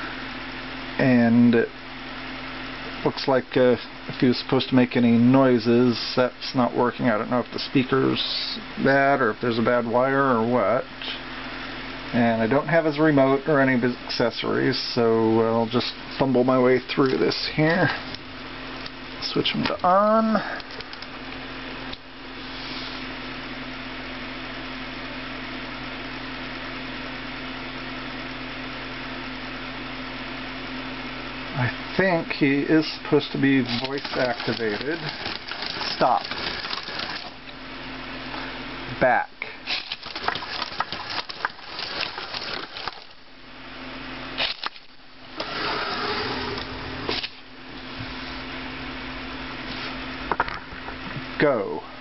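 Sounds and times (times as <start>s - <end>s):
steady background hum: 0.0s - 52.0s
small geared motors running: 32.4s - 37.5s, 39.6s - 43.2s, 44.4s - 47.4s.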